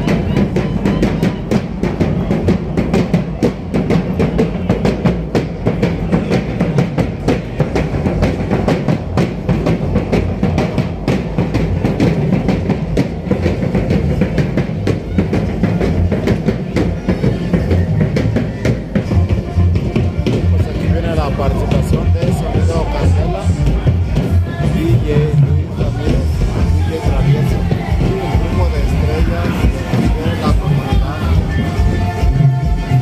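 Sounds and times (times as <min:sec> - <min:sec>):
drums: 0:00.0 - 0:33.0.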